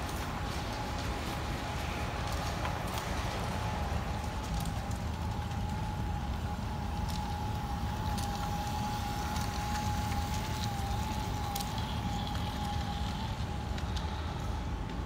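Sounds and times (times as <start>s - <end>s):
wheels clicking over rail joints: 0.0s - 15.0s
model train high whine: 5.6s - 14.9s.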